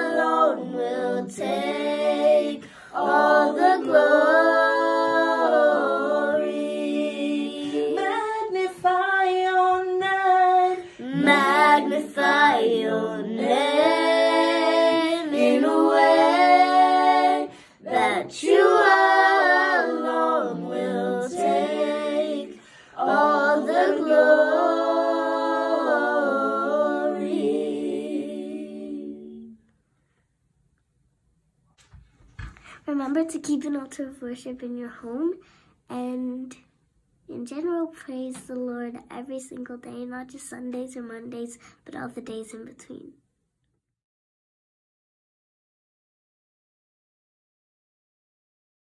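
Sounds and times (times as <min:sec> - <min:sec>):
girl singing: 0:00.0 - 0:06.6, 0:07.5 - 0:26.3
breaths: 0:02.6 - 0:03.0, 0:17.5 - 0:17.8, 0:22.6 - 0:23.0, 0:32.4 - 0:32.9, 0:35.4 - 0:35.9, 0:41.6 - 0:41.9.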